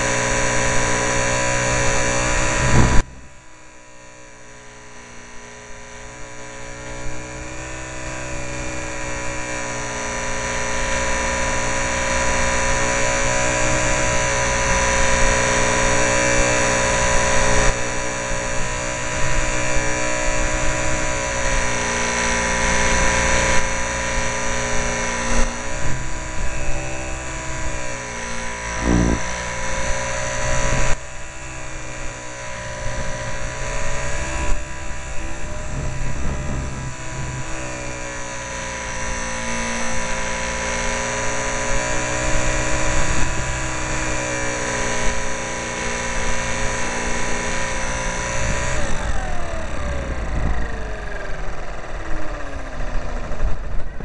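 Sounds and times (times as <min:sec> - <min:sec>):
rush of noise: 0:00.0 - 0:05.1, 0:23.4 - 0:44.3
model plane motor buzzing: 0:00.0 - 0:54.0.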